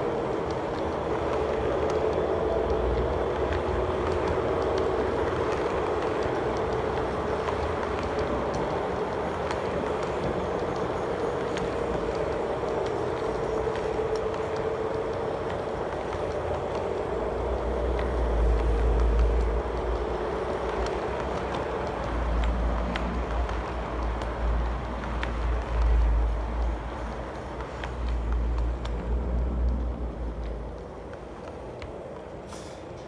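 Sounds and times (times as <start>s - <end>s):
constant hum: 0.0s - 33.0s.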